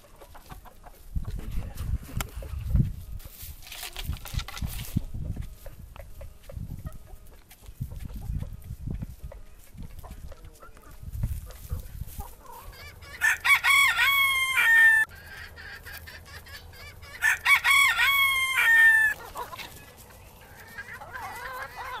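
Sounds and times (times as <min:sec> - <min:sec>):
faint chicken calls: 0:05.2 - 0:22.0
rooster crowing: 0:13.0 - 0:15.1, 0:17.1 - 0:19.2.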